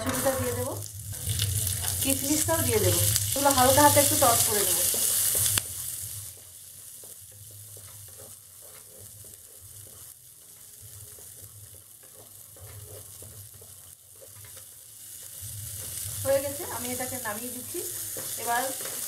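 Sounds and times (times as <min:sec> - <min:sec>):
nuts sizzling in a frying pan: 0:00.0 - 0:19.0
wooden spatula scraping pan: 0:10.9 - 0:19.0.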